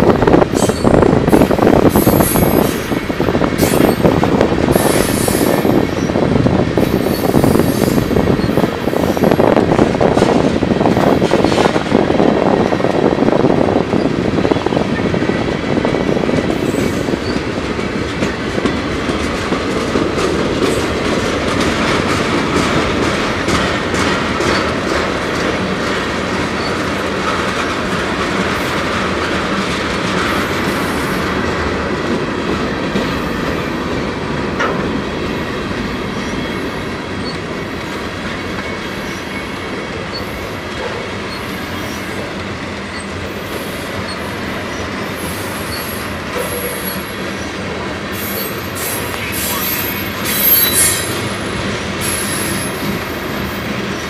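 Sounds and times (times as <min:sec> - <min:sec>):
freight train rolling past: 0:00.0 - 0:54.0.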